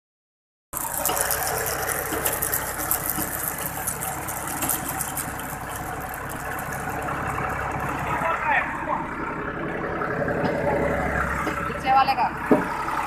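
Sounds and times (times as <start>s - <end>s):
tractor engine running: 0.7s - 13.0s
fast ticking rattle: 0.8s - 9.2s.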